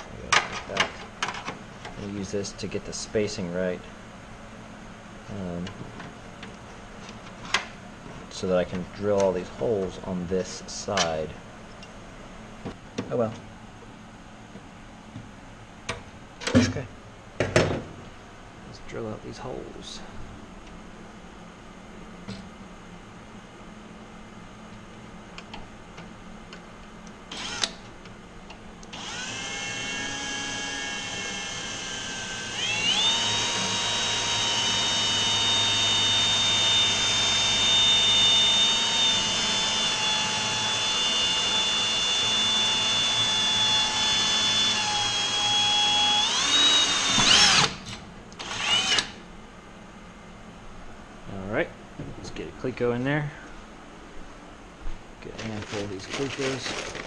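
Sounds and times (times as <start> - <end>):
cordless drill whining: 27.3 - 27.8, 28.9 - 47.8, 48.4 - 49.2.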